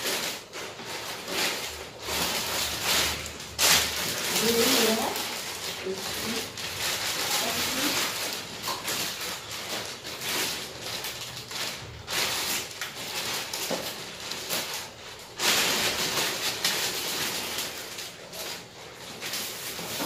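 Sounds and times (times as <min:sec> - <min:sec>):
plastic sheet rustling: 0:00.0 - 0:20.0.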